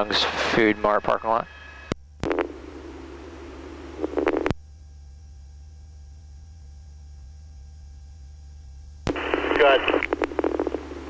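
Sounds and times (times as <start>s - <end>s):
radio static hiss: 0.0s - 4.6s, 9.0s - 11.0s
helicopter cabin drone: 0.0s - 11.0s
garbled radio voice burst: 9.1s - 10.8s.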